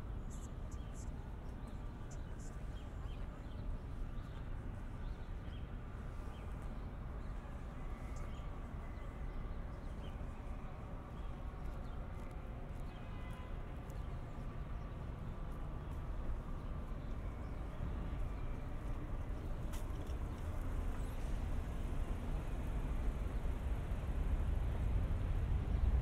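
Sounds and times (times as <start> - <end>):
city traffic rumble: 0.0 - 26.0
footsteps on paving stones: 10.2 - 17.2, 17.9 - 21.4.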